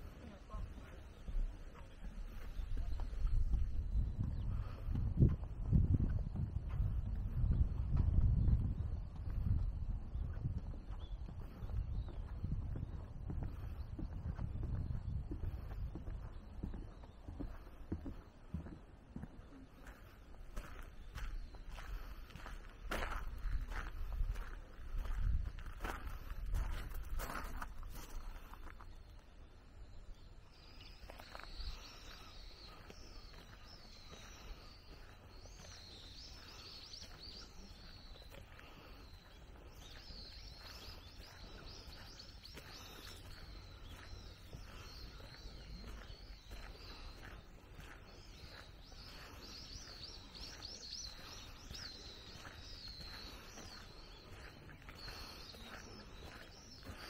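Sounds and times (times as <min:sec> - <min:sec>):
low wind rumble: 0:00.0 - 0:18.1
footsteps on a path: 0:00.0 - 0:29.5, 0:30.4 - 0:57.0
small birds twittering: 0:00.0 - 0:57.0.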